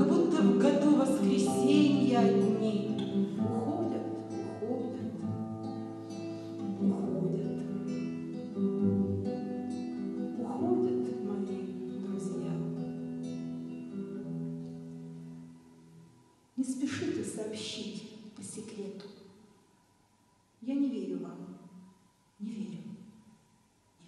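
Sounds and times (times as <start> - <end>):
classical guitar playing: 0.0 - 16.2.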